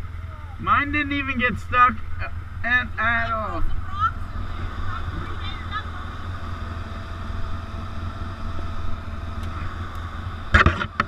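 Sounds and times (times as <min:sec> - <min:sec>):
atv engine idling: 0:00.0 - 0:11.0.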